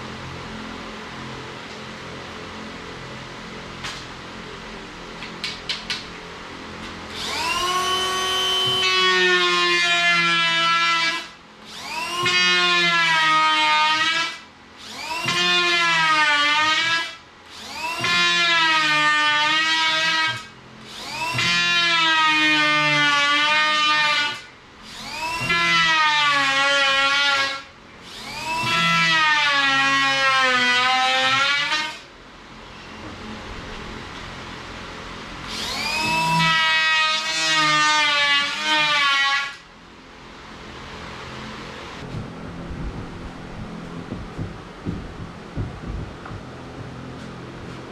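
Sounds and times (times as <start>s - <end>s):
circular saw whining: 7.1s - 32.0s, 35.4s - 39.6s
power tool cutting board: 7.1s - 32.0s, 35.5s - 39.6s.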